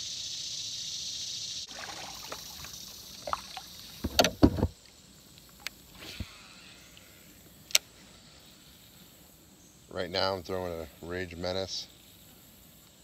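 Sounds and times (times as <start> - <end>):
steady high hiss: 0.0 - 13.0
fishing gear clicks and knocks: 4.0 - 4.7
heavy thumps: 4.0 - 4.7.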